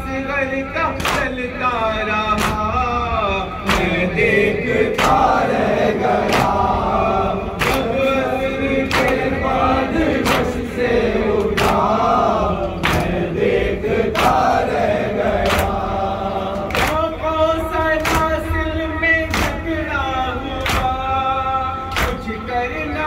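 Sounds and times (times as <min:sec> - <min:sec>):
men chanting in unison: 0:00.0 - 0:23.0
hands slapping chests: 0:01.0 - 0:01.3, 0:02.4 - 0:02.7, 0:03.7 - 0:04.0, 0:04.9 - 0:07.0, 0:07.6 - 0:08.0, 0:08.7 - 0:16.0, 0:16.6 - 0:17.1, 0:18.0 - 0:18.4, 0:19.3 - 0:19.7, 0:20.6 - 0:21.0, 0:21.9 - 0:22.2.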